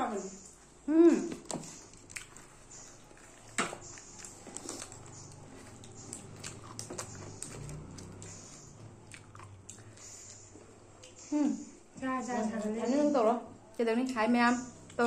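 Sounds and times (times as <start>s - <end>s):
people biting and chewing: 1.3s - 11.3s.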